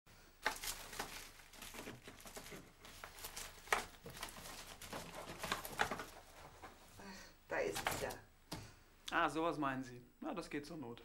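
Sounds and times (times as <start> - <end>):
rustling in wicker basket: 0.4 - 7.0.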